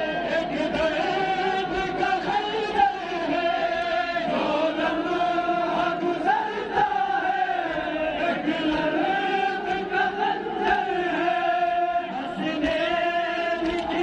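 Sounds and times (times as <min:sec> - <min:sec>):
men chanting a lament: 0:00.0 - 0:14.0.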